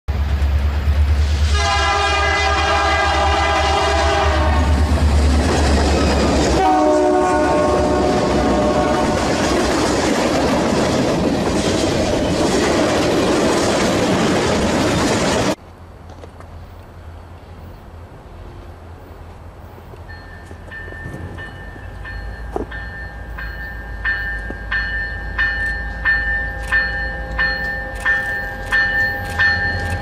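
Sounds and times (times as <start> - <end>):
train rolling past on rails: 0.1 - 30.0
locomotive air horn: 1.4 - 4.8, 6.5 - 9.3.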